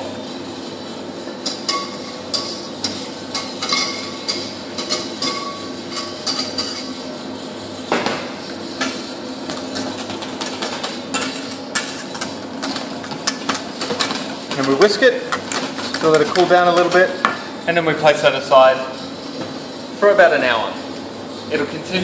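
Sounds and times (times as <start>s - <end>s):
whisk clinking against metal bowl: 1.4s - 7.0s, 9.7s - 17.4s.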